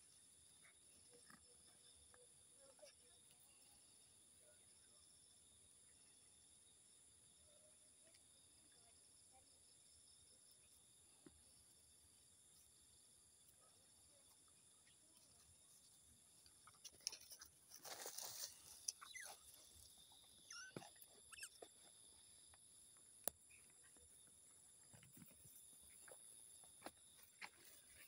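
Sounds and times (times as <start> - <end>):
high-pitched insect chorus: 0.0 - 28.0
footsteps rustling on dry grass: 17.7 - 18.9.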